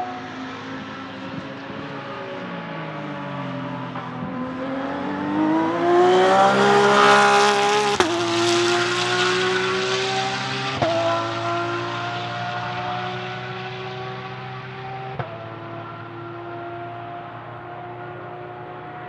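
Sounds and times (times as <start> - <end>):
race car accelerating past: 0.0 - 19.0.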